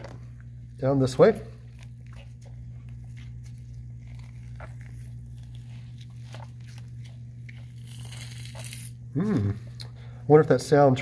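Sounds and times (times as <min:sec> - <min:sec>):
steady low hum: 0:00.0 - 0:11.0
tissue crackling and tearing: 0:03.3 - 0:08.9.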